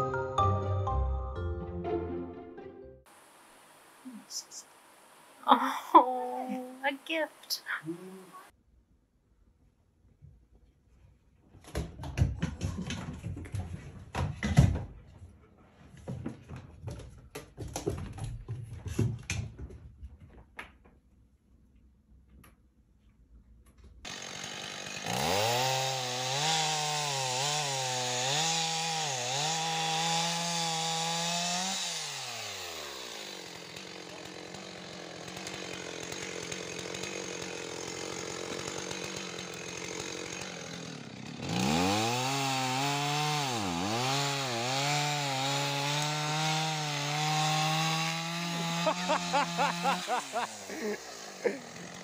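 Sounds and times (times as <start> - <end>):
chainsaw revving: 24.1 - 52.0.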